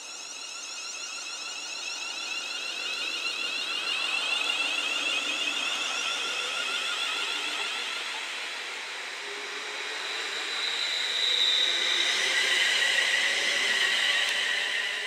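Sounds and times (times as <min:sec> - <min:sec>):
high-pitched motor whine: 0:00.0 - 0:15.0.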